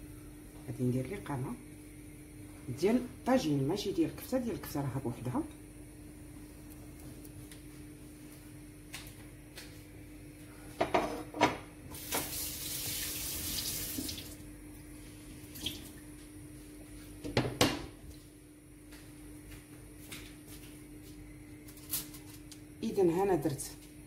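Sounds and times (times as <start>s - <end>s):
faint steady hum: 0.0s - 24.0s
water running: 11.9s - 14.4s.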